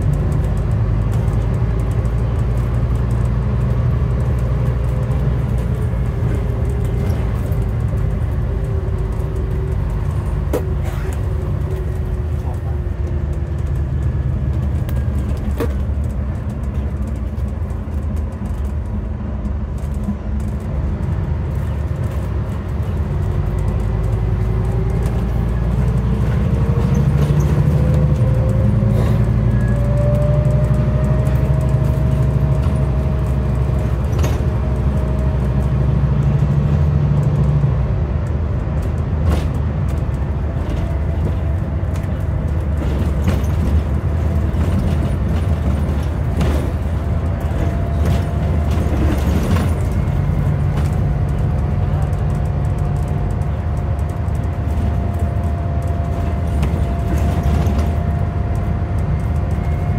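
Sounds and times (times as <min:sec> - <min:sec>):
bus diesel engine with whine: 0:00.0 - 0:59.9
light rattles inside bus: 0:00.0 - 0:59.9.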